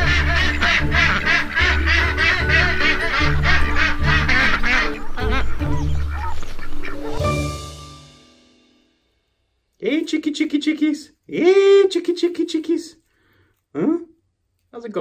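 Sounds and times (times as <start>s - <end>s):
ducks quacking rapidly: 0.0s - 7.5s
background music with bass notes: 0.0s - 8.6s.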